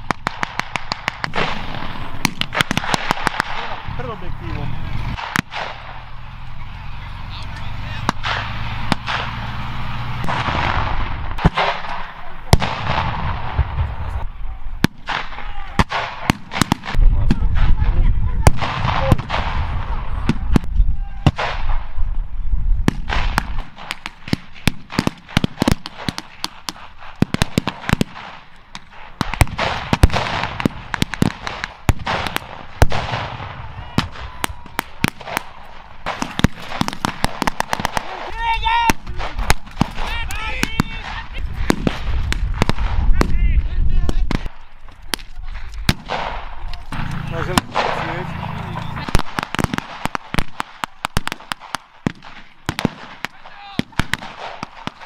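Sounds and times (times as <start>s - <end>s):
rapid gunfire: 0.0s - 4.2s, 5.0s - 6.0s, 8.0s - 9.4s, 22.9s - 38.3s, 45.9s - 55.0s
pyrotechnic blasts: 0.0s - 55.0s
low engine rumble: 3.6s - 11.4s, 46.5s - 49.5s.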